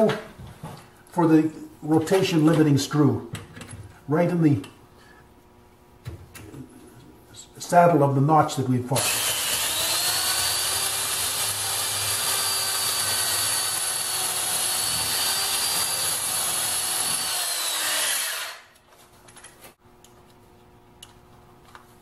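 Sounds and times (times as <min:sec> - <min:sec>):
electric drill boring into wood: 0:09.0 - 0:18.8.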